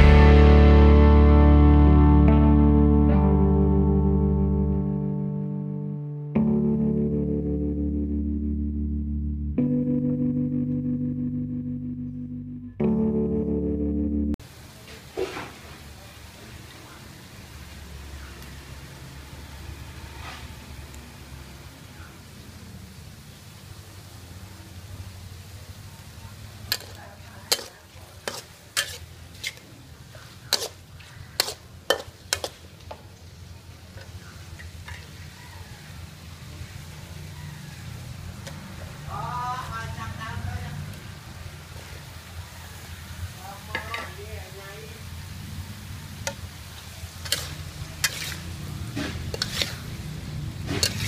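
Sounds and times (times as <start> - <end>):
frying sizzle: 14.4 - 51.0
metal spatula scraping a wok: 26.7 - 32.7, 47.2 - 51.0.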